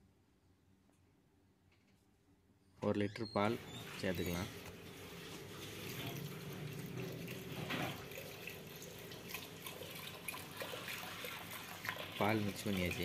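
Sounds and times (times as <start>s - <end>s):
milk pouring into a pot: 5.2s - 13.0s.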